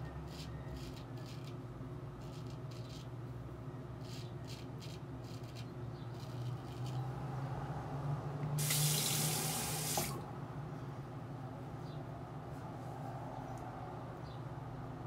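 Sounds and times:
razor scraping stubble: 0.0s - 1.6s, 2.2s - 3.2s, 4.0s - 7.1s
tap running into sink: 8.6s - 10.2s.

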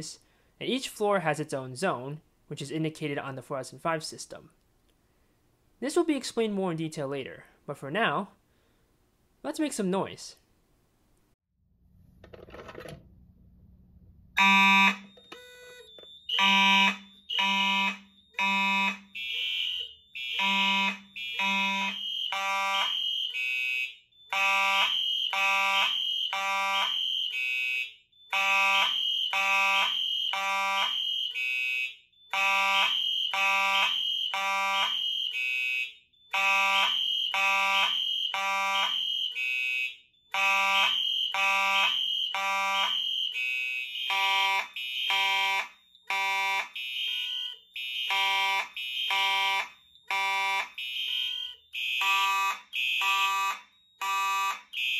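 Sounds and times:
fire alarm horns blasting: 14.4s - 54.9s.

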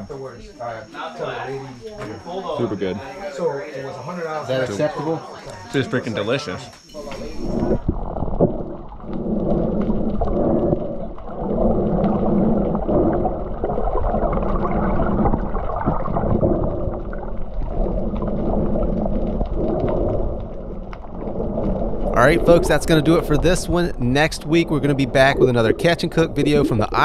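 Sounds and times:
low wavering underwater drone: 6.9s - 27.0s
faint clicks: 17.6s - 22.1s.

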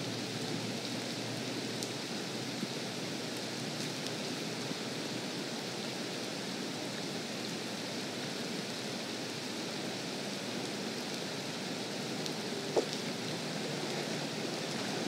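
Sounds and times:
rain falling on water and grass: 0.0s - 15.0s.

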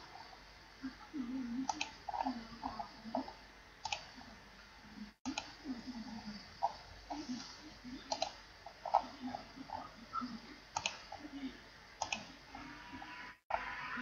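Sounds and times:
computer mouse clicks: 1.6s - 4.2s, 5.2s - 5.6s, 8.0s - 9.1s, 10.7s - 11.2s, 12.0s - 12.4s.

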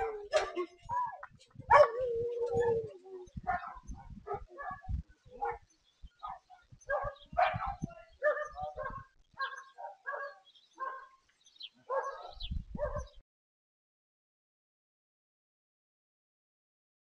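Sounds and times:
dog barking: 0.0s - 0.6s, 1.7s - 2.0s, 3.4s - 5.6s, 6.2s - 11.2s, 11.9s - 13.2s.

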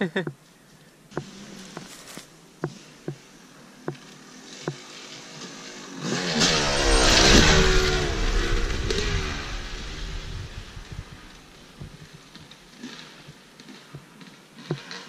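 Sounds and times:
dirt bike engine revving: 3.8s - 13.0s.

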